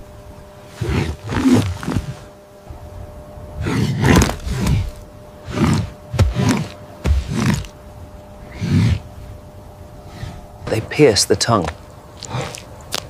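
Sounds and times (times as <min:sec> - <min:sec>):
lion snarling and growling: 0:00.7 - 0:02.3, 0:03.6 - 0:07.8, 0:08.4 - 0:09.1.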